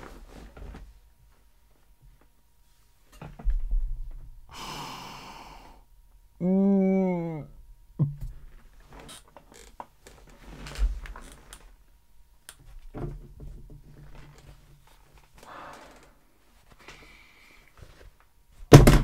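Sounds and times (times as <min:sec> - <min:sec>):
breathy exhales: 0:04.5 - 0:05.9, 0:15.4 - 0:17.7
desk chair creaks: 0:08.8 - 0:11.7, 0:13.9 - 0:16.2.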